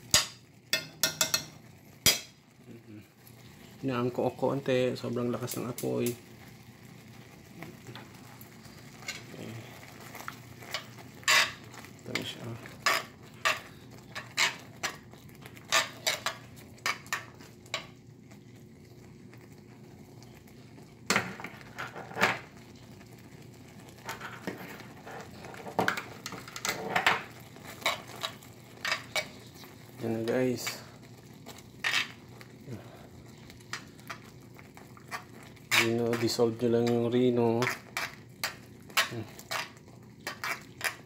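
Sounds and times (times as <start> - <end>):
spoon clinking and scraping a skillet: 0.1 - 2.4, 8.9 - 9.3, 10.0 - 18.0, 23.9 - 30.0, 31.5 - 32.3, 33.5 - 41.0.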